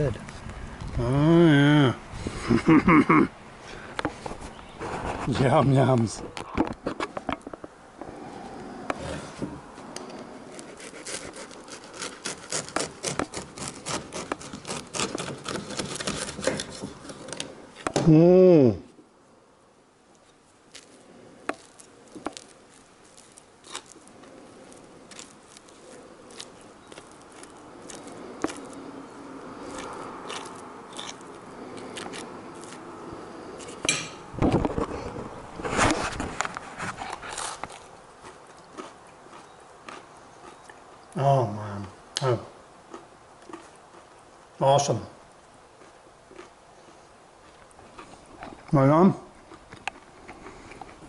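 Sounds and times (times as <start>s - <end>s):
knife sawing through bread crust: 10.5s - 17.3s.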